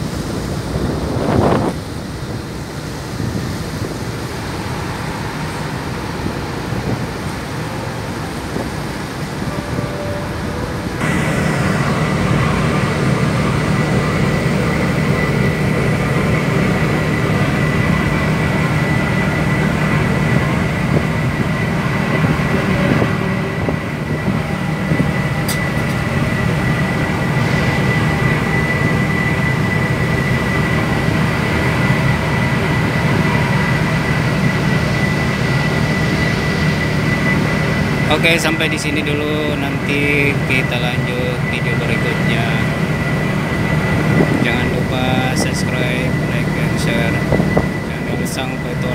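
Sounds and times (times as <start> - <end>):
boat engines droning: 0.0 - 48.9
high whine: 0.0 - 48.9
wind and water rushing: 0.0 - 48.9.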